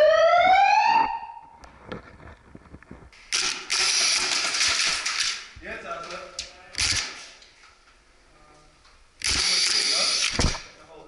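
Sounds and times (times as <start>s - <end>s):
siren rising in pitch: 0.0s - 1.6s.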